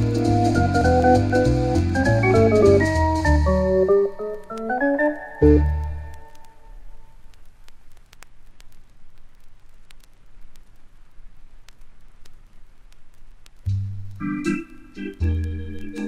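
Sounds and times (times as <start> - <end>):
vinyl clicks and crackle: 0.0 - 16.0
vinyl record hiss: 0.0 - 16.0.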